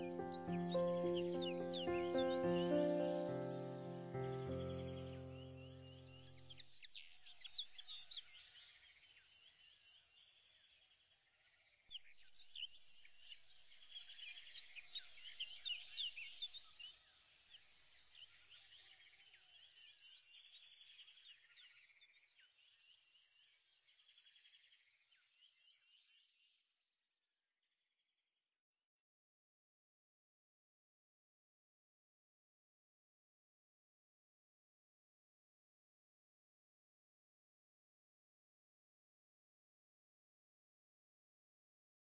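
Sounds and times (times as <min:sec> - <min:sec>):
birds chirping and trilling: 0:00.0 - 0:08.8.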